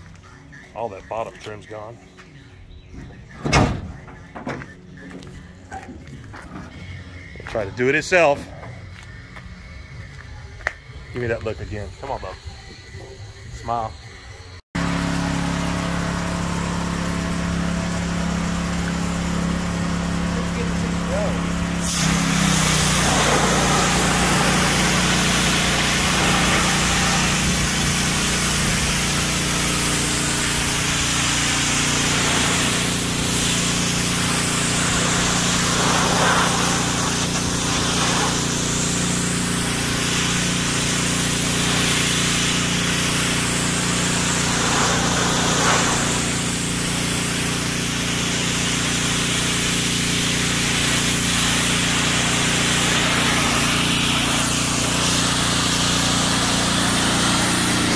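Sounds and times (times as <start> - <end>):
pressure washer jet hissing: 14.8 - 57.9
washer motor and pump hum: 14.8 - 57.9.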